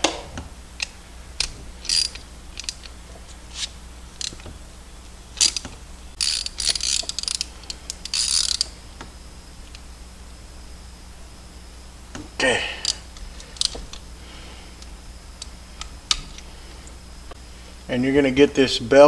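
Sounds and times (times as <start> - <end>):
hand ratchet clicking: 0.8 - 2.9, 5.4 - 8.8.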